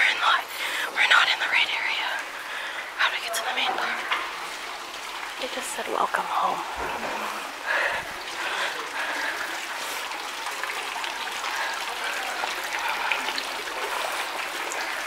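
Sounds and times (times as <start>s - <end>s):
fountain water trickling: 0.0s - 15.0s.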